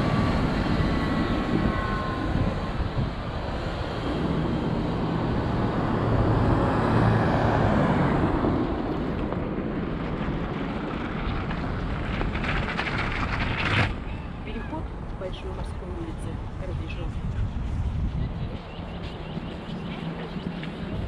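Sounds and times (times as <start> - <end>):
vehicle passing close by: 0.0 - 13.9.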